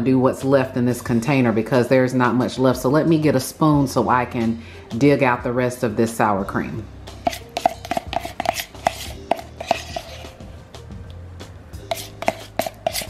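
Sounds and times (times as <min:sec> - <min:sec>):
metal spoon scraping plastic tub: 0:07.1 - 0:10.5, 0:11.8 - 0:13.0.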